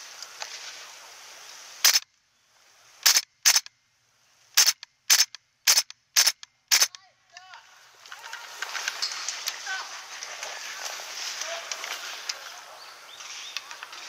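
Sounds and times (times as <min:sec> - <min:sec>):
low hiss: 0:00.0 - 0:14.0
airsoft rifle shots: 0:01.8 - 0:02.0, 0:03.0 - 0:03.7, 0:04.6 - 0:07.0.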